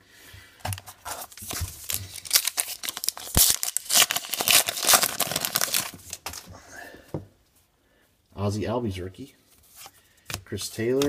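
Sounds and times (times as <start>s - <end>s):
wrapper crinkling and tearing: 1.0s - 6.4s.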